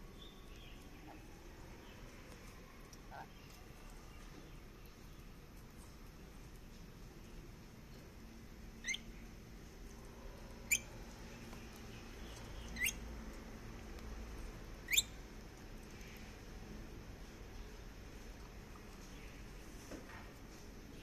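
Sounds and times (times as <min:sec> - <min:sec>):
lorikeet whistled chirps: 0:08.8 - 0:09.0, 0:12.8 - 0:13.0, 0:14.9 - 0:15.1.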